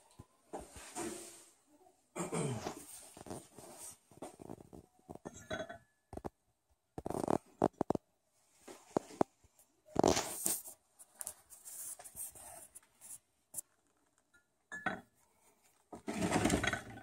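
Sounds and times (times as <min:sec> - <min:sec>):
plastic rubbing and scraping on metal: 0:07.0 - 0:08.1, 0:15.7 - 0:17.0.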